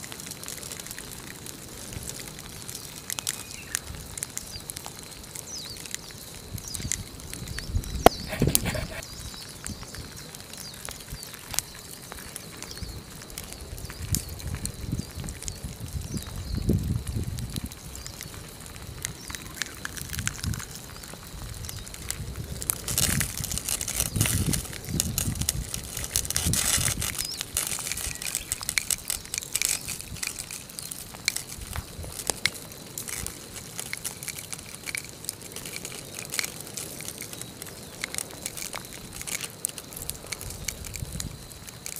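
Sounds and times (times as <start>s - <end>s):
lava crushing metal cans: 6.6s - 9.2s, 18.5s - 41.9s
cans hissing: 8.0s - 9.0s.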